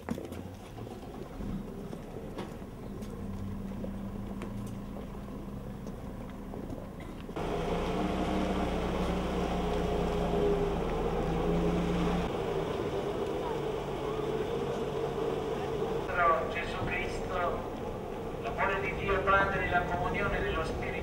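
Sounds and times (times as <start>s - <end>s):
truck engine running: 0.4s - 21.0s
crowd noise: 8.8s - 21.0s.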